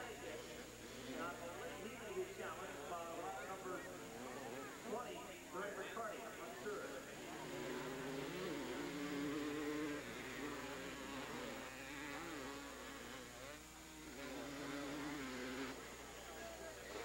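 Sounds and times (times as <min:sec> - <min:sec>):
atv engine revving: 0:06.6 - 0:17.0.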